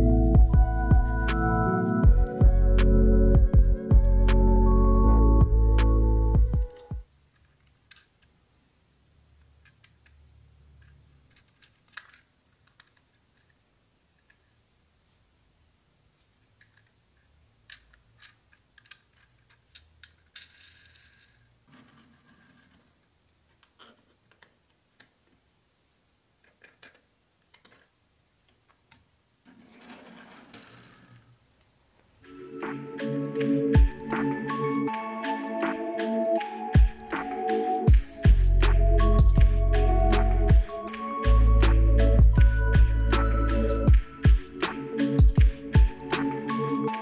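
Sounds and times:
background music: 0:00.0 - 0:07.1, 0:32.2 - 0:47.0
plastic blocks clicking: 0:07.4 - 0:08.3, 0:09.6 - 0:13.6, 0:16.6 - 0:21.5, 0:22.4 - 0:25.2, 0:26.4 - 0:28.0
rustling rolling noise: 0:29.4 - 0:31.4.

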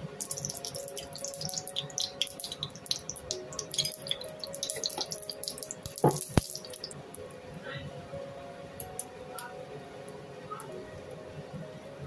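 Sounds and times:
oil crackling in a pan: 0:00.1 - 0:07.0.

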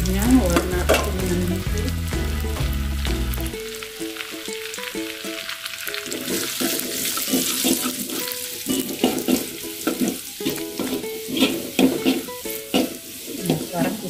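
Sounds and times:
garlic sizzling in hot oil: 0:00.0 - 0:14.0
soft background music: 0:00.0 - 0:14.0
metal spatula scraping wok: 0:06.0 - 0:14.0.

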